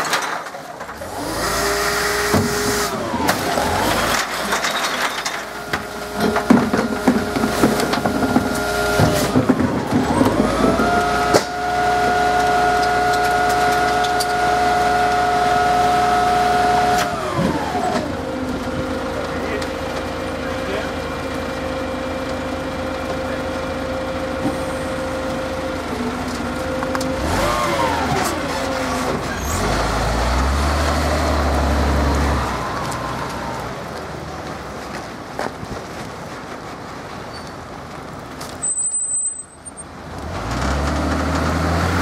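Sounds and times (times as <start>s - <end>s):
rubbish clattering into steel hopper: 0.0s - 14.6s
garbage truck engine revving: 0.0s - 35.0s, 39.9s - 42.0s
hydraulic whine: 0.9s - 19.6s, 20.3s - 33.9s.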